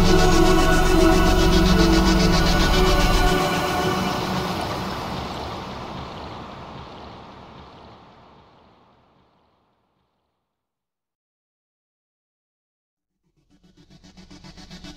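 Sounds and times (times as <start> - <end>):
background music: 0.0 - 5.3.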